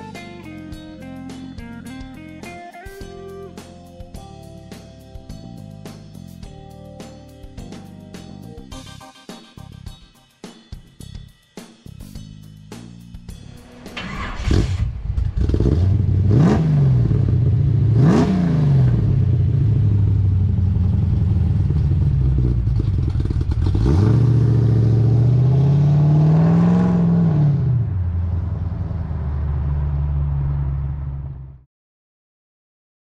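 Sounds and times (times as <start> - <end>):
pickup truck engine revving: 13.7 - 20.0, 20.7 - 31.5.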